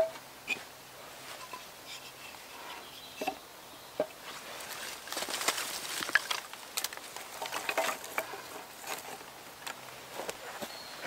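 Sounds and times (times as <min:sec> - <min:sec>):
twigs crackling and snapping: 0:04.5 - 0:10.4.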